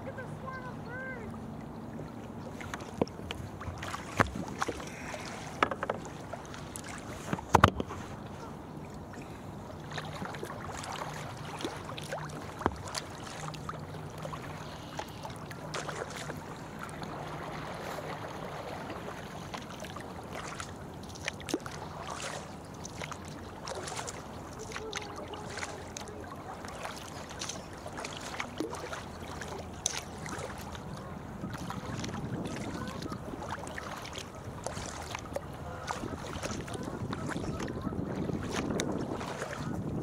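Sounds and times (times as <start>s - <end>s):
paddles stroking through water: 0.0s - 40.0s
paddle knocks: 2.5s - 8.1s, 11.6s - 13.4s.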